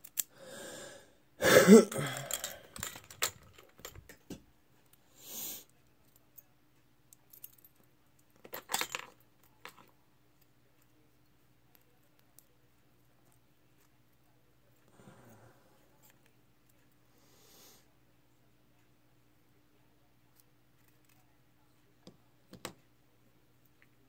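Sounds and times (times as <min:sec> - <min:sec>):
metal lock parts clinking: 0:02.2 - 0:04.2, 0:08.4 - 0:09.9.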